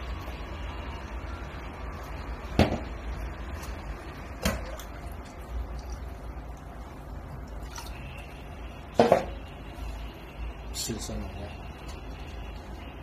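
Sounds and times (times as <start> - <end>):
water pouring: 3.6 - 8.9.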